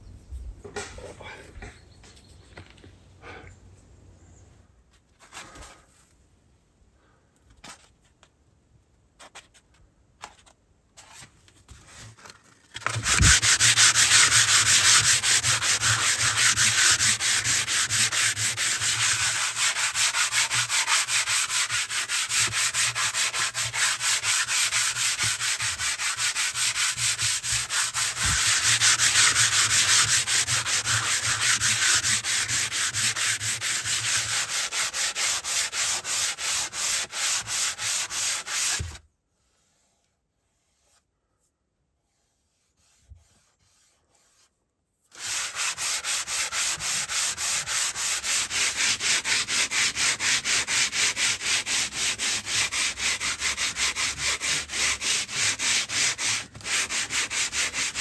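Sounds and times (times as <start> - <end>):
hand sanding wood: 12.8 - 41.0, 42.0 - 44.5, 45.1 - 58.0.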